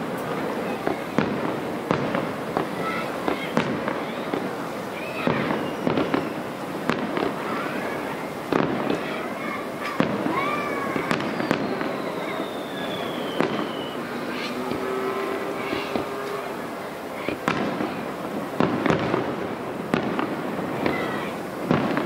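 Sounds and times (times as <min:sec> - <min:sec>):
fireworks bursting with bangs: 0:00.0 - 0:22.0
fireworks crackling: 0:00.0 - 0:22.0
descending whistle: 0:11.2 - 0:16.0.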